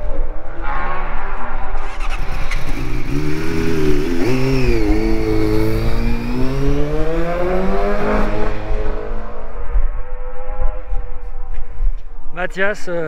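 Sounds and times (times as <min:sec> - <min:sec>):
motorcycle engine pulling away: 0:01.8 - 0:11.2.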